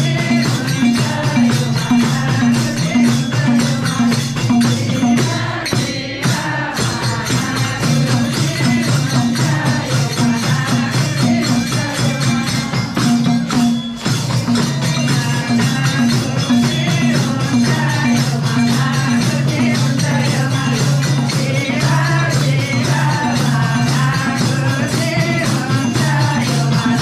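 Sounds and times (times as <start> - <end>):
jingling percussion: 0.0 - 27.0.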